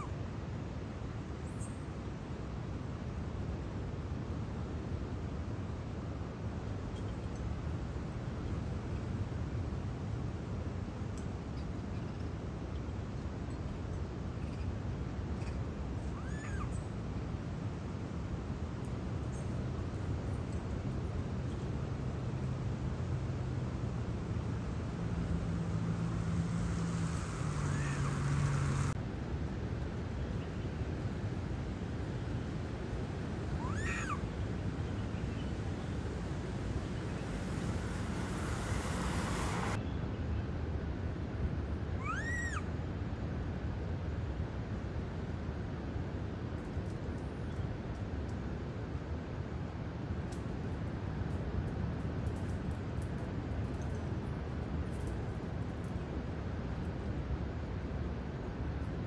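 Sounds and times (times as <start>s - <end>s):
monkey call: 16.1s - 16.9s, 27.1s - 28.9s, 33.6s - 34.3s, 42.0s - 42.7s
hiss: 26.4s - 29.0s, 37.2s - 39.8s
macaque coo call: 42.0s - 42.6s.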